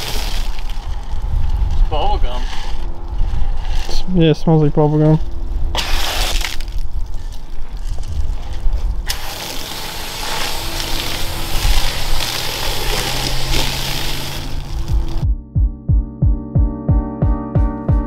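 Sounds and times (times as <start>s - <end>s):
foam gun spraying hiss: 5.8s - 6.6s, 9.1s - 15.2s.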